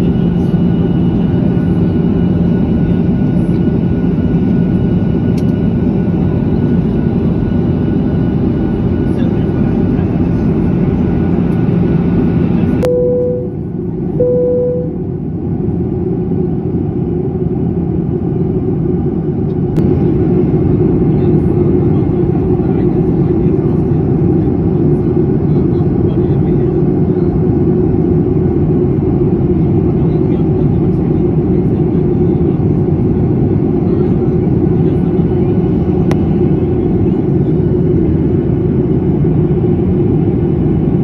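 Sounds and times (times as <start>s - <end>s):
jet cabin engine and airflow roar: 0.0s - 41.0s
short even tones: 12.8s - 13.6s, 14.2s - 15.0s.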